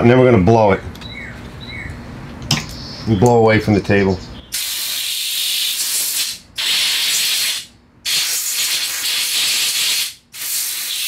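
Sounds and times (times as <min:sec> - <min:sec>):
compressed air blow gun hissing: 0:04.5 - 0:11.0.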